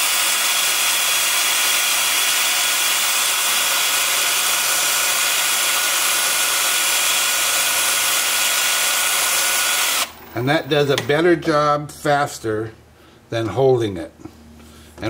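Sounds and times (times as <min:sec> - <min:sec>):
drill motor whine: 0:00.0 - 0:10.2.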